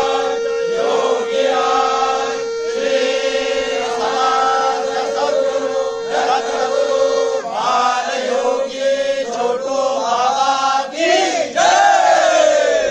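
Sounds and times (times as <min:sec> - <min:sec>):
steady held tone: 0:00.0 - 0:10.0, 0:11.8 - 0:12.9
men chanting in unison: 0:00.0 - 0:12.9.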